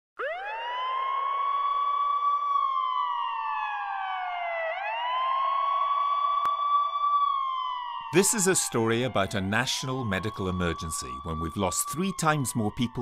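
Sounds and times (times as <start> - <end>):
siren winding up and down: 0.2 - 13.0.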